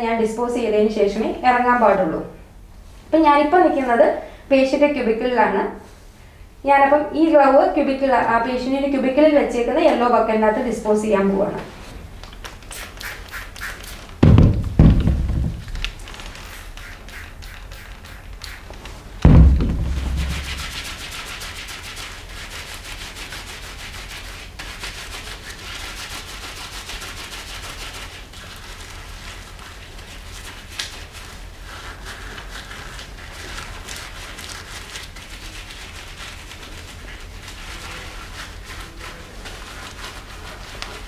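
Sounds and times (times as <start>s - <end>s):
gloved hands rubbing together: 11.7s - 41.0s
loud thump: 14.2s - 15.9s, 19.2s - 21.0s.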